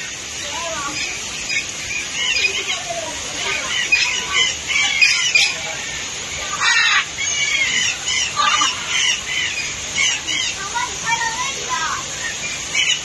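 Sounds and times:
parrots squawking: 0.7 - 11.4, 12.2 - 13.0
harsh parrot screech: 6.5 - 9.2.

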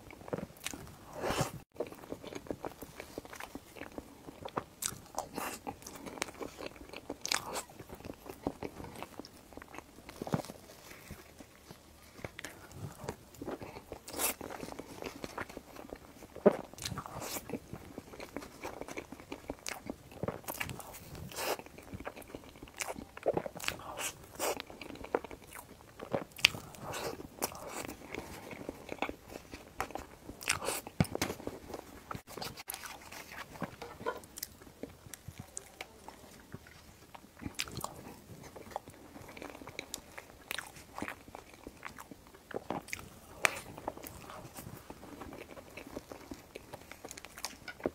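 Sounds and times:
chewing and mouth smacks: 0.1 - 47.9.

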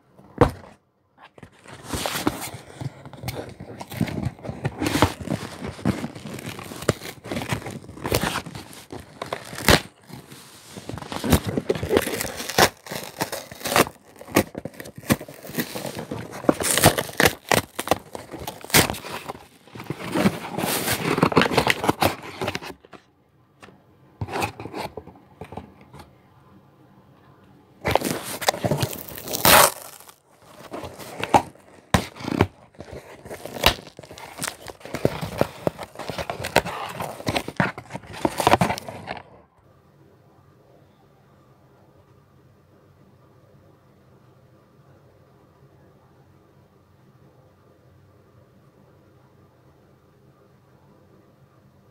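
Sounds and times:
packaging crinkling and tearing: 1.4 - 23.0, 27.8 - 39.4.

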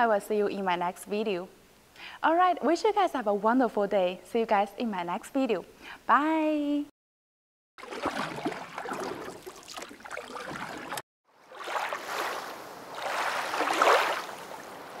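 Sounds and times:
rushing water: 7.8 - 15.0.

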